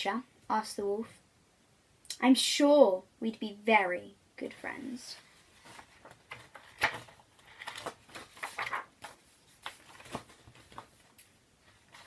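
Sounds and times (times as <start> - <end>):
book pages rustling: 5.2 - 12.0.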